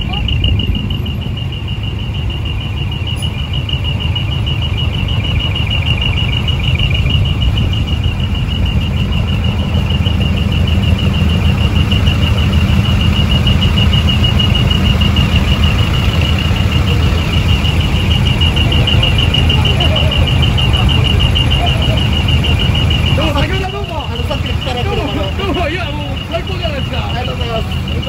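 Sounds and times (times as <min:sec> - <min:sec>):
rapid high-pitched electronic beep: 0:00.0 - 0:28.0
road rumble: 0:00.0 - 0:28.0
truck diesel engine: 0:00.0 - 0:28.0.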